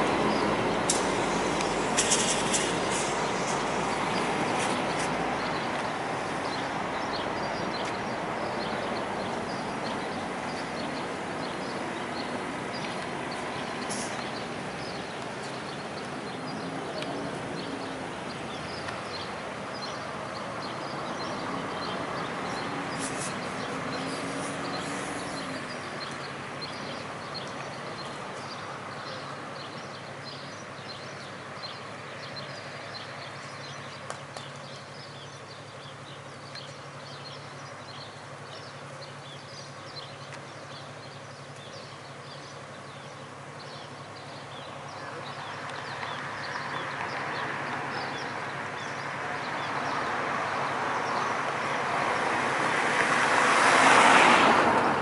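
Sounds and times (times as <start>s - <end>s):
low engine hum: 0.0s - 55.0s.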